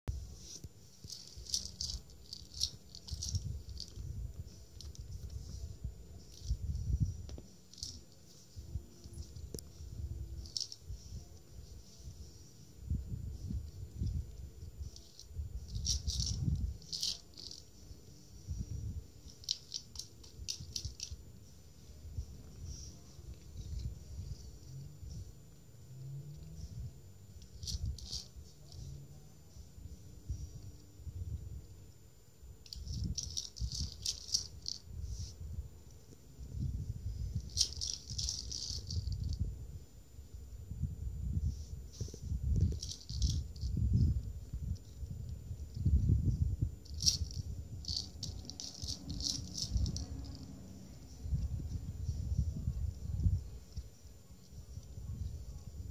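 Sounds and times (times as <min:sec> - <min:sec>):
kibble rattling in plastic toy: 0:00.4 - 0:08.4, 0:09.0 - 0:10.9, 0:14.0 - 0:17.8, 0:18.6 - 0:21.2, 0:27.4 - 0:28.8, 0:32.6 - 0:35.3, 0:37.3 - 0:39.4, 0:41.9 - 0:44.2, 0:46.8 - 0:50.5.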